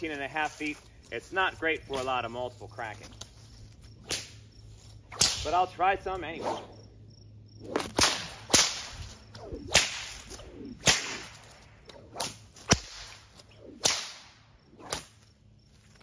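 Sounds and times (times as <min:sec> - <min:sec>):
whip cracks: 0:04.1 - 0:04.4, 0:05.1 - 0:05.7, 0:06.4 - 0:06.8, 0:07.7 - 0:15.2
whoosh of whip thong: 0:06.4 - 0:06.8, 0:07.7 - 0:15.2.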